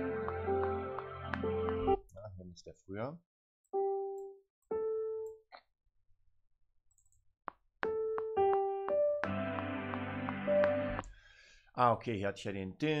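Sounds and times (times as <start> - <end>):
piano chords and bass notes: 0.0 - 2.0, 7.8 - 11.1
piano notes: 0.0 - 2.0, 7.8 - 11.0.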